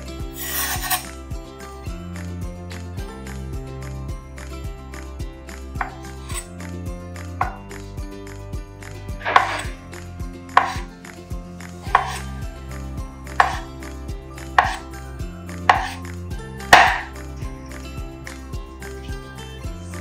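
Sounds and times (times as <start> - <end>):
knife knocking on wooden board: 5.8 - 6.4, 7.4 - 7.7, 9.2 - 9.8, 10.6 - 10.9, 11.9 - 12.2, 13.4 - 13.7, 14.6 - 14.8, 15.7 - 16.0, 16.7 - 17.2.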